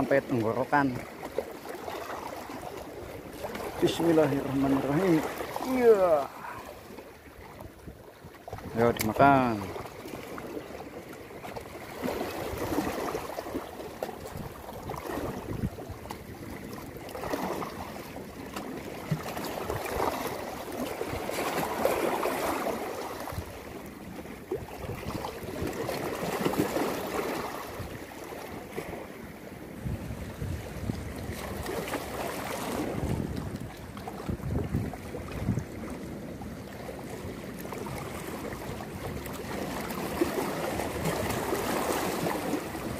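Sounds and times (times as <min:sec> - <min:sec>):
sea water washing against rocks: 0:00.0 - 0:42.9
wind on microphone: 0:14.2 - 0:16.5, 0:29.7 - 0:36.0.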